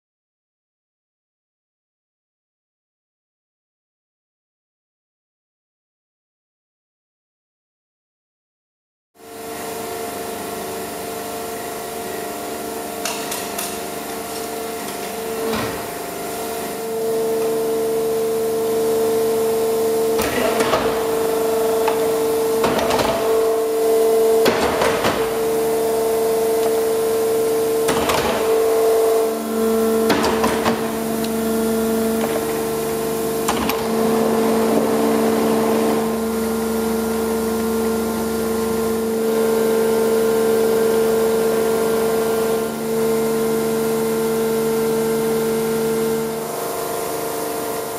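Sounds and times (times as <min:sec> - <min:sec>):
hydraulic pump humming: 0:09.7 - 0:47.9.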